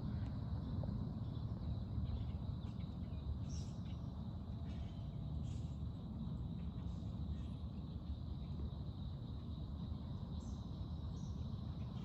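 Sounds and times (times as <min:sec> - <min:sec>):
high insect drone: 0:01.3 - 0:12.0.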